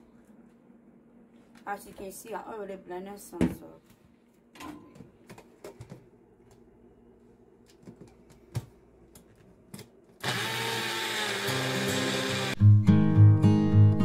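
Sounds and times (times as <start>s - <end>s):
blender motor running: 10.2s - 12.6s.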